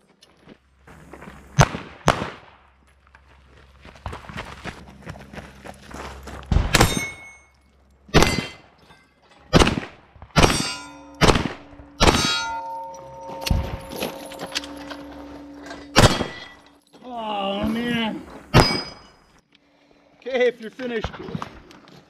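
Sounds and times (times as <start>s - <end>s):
pistol shots: 1.6s - 2.6s, 6.5s - 7.3s, 8.1s - 8.6s, 9.5s - 12.4s, 16.0s - 16.5s
steel targets clanging: 6.7s - 9.6s, 10.4s - 17.0s, 18.5s - 19.4s.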